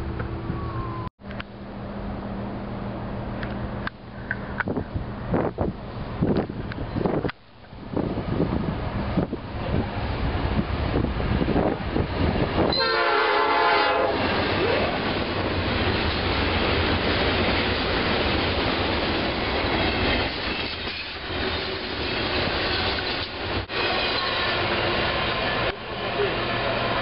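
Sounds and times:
freight train passing: 0:00.0 - 0:27.0
locomotive air horn blast: 0:12.7 - 0:14.9.

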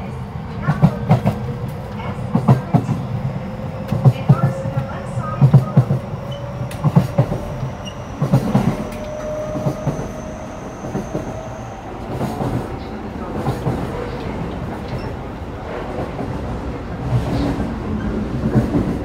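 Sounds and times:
steady train whine: 0:00.0 - 0:19.0
train rumble: 0:00.0 - 0:19.0.

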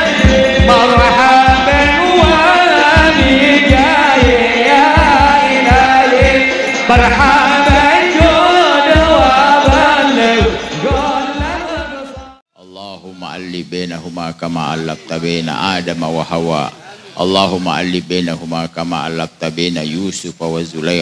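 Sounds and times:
men singing devotional song: 0:00.0 - 0:12.4
steady drum beat: 0:00.0 - 0:12.4.

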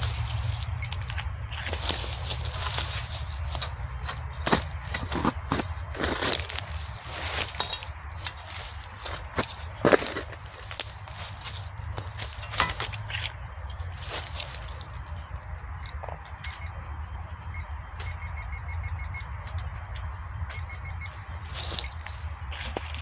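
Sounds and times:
metal detector beeping: 0:00.0 - 0:04.3, 0:15.1 - 0:23.0.

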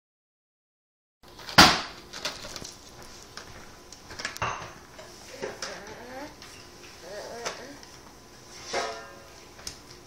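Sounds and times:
plastic pack slapping on tiles: 0:01.3 - 0:04.4.

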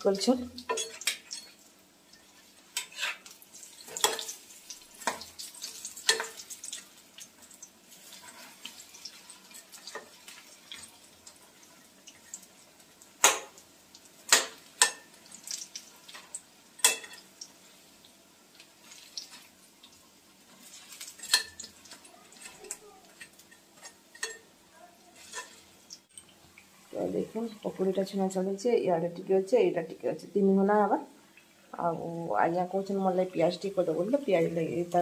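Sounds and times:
faint oil sizzle: 0:00.0 - 0:35.0
metal utensils clinking on pan: 0:00.6 - 0:07.3, 0:08.0 - 0:10.9, 0:13.2 - 0:13.6, 0:14.3 - 0:17.3, 0:20.6 - 0:24.5, 0:25.2 - 0:26.4.

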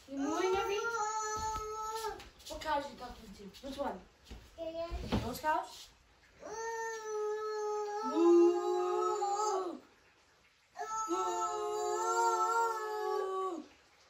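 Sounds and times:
children mooing like cows: 0:06.5 - 0:09.8, 0:10.8 - 0:13.7.

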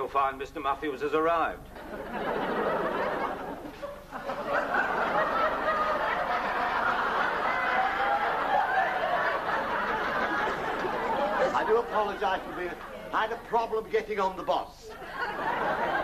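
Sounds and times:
audience laughing: 0:01.8 - 0:13.6, 0:14.9 - 0:16.0.

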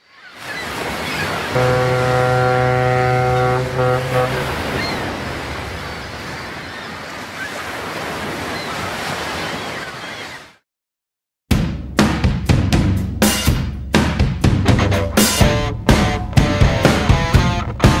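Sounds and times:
ocean surf: 0:00.1 - 0:10.6
drum beat: 0:11.5 - 0:18.0.

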